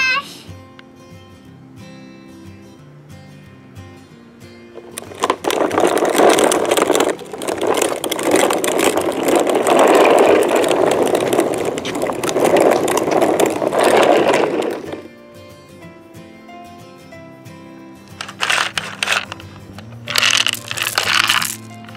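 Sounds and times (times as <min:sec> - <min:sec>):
toy truck wheels crunching on grit: 0:04.8 - 0:15.2, 0:18.1 - 0:21.9.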